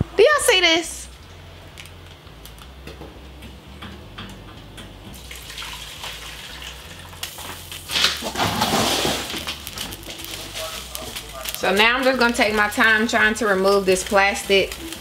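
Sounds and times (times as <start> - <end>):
liquid pouring and splashing: 5.2 - 9.6.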